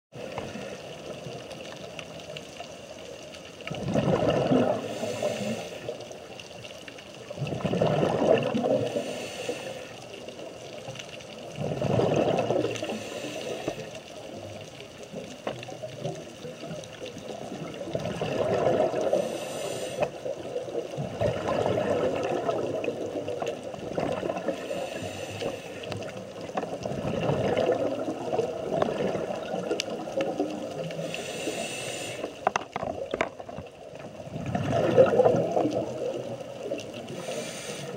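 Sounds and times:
steady underwater background: 0.1s - 37.9s
gurgling bursts of exhaled bubbles: 3.6s - 6.0s, 7.2s - 9.7s, 11.4s - 13.8s, 15.1s - 37.9s.

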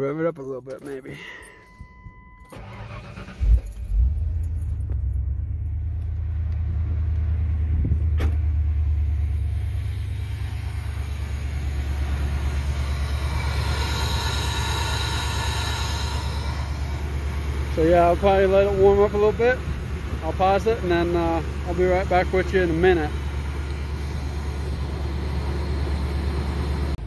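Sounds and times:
car engine cranking and idling: 0.0s - 27.0s
air intake rushing: 2.5s - 3.7s, 9.1s - 26.9s.

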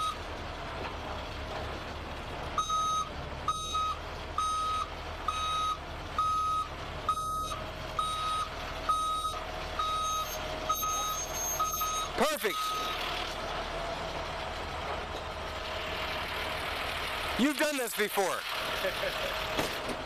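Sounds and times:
reversing alarm beeping: 0.0s - 0.2s, 2.6s - 13.0s
truck engine running low: 0.0s - 20.0s.

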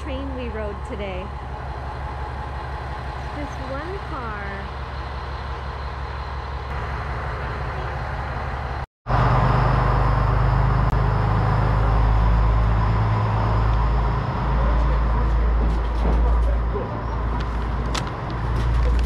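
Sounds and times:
diesel engine humming: 0.0s - 19.0s.

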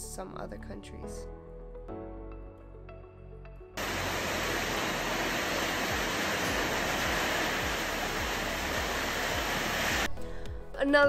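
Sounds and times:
heavy rain pouring: 3.8s - 10.1s.

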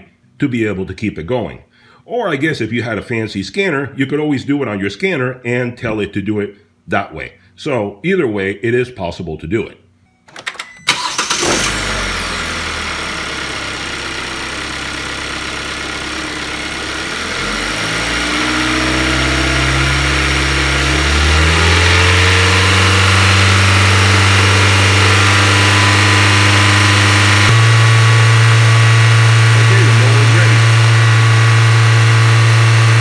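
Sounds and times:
car engine starting with clicks: 10.3s - 12.6s
car engine revving: 11.0s - 33.0s.

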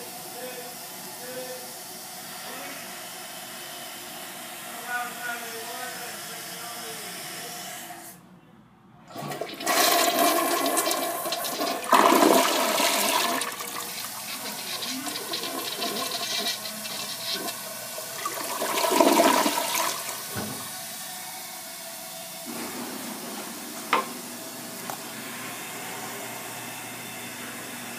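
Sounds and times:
toilet flushing: 9.1s - 27.9s.

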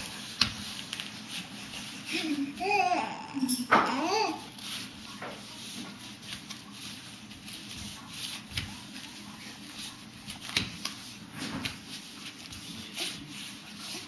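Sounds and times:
hands patting foam mat: 0.0s - 1.2s, 10.2s - 13.7s
clothes rubbing: 0.0s - 14.0s.

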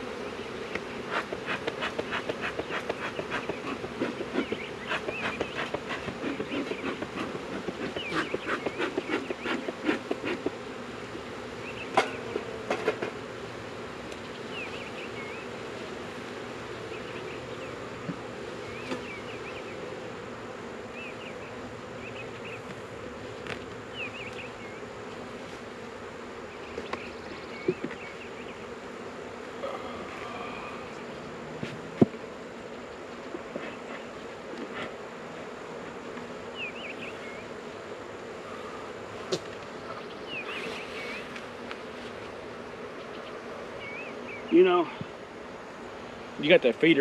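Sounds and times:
honeybees buzzing: 0.0s - 47.0s
wooden hive box knocking: 0.8s - 10.6s.

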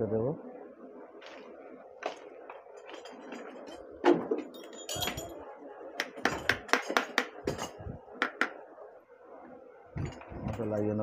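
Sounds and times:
metal clinking: 2.8s - 5.4s.

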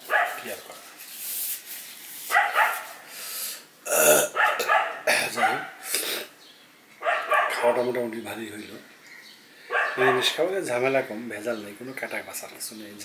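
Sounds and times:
dogs barking: 0.0s - 0.6s, 2.3s - 3.0s, 4.3s - 5.9s, 7.0s - 7.9s, 9.7s - 10.5s.

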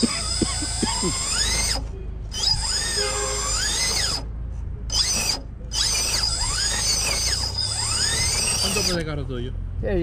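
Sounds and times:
electric motor whining: 0.0s - 4.3s, 4.9s - 9.2s.

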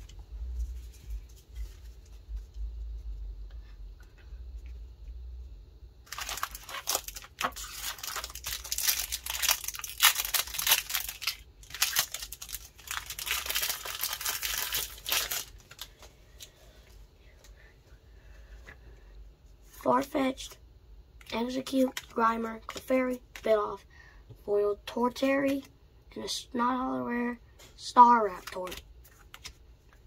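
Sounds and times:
foil wrapper crinkling and tearing: 6.0s - 16.0s.

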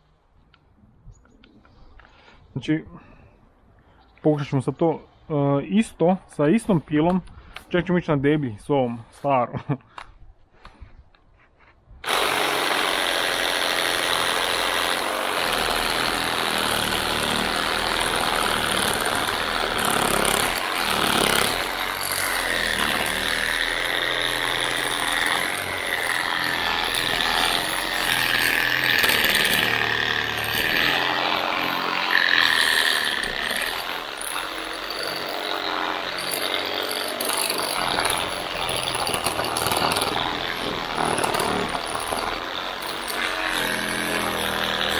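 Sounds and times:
blade rasping through wood: 12.0s - 44.9s
reciprocating saw cutting wood: 12.0s - 44.9s.

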